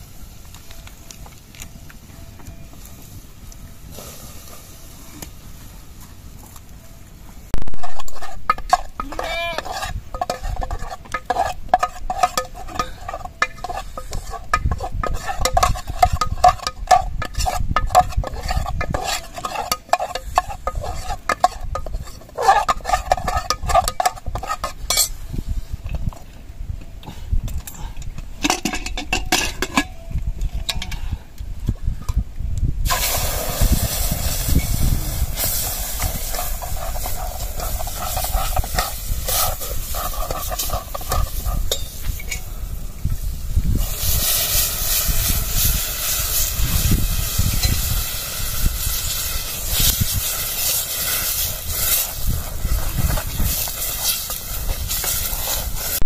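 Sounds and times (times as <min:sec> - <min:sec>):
cooking hiss: 0:00.0 - 0:26.2, 0:32.7 - 0:56.0
metal spoon scraping in pot: 0:07.8 - 0:25.2, 0:35.4 - 0:42.5.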